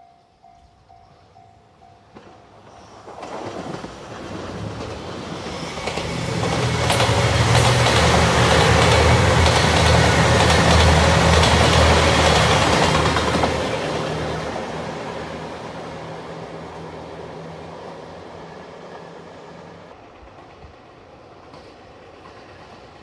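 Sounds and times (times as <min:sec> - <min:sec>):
train wheels clattering on rail: 0:02.0 - 0:14.4, 0:20.1 - 0:23.0.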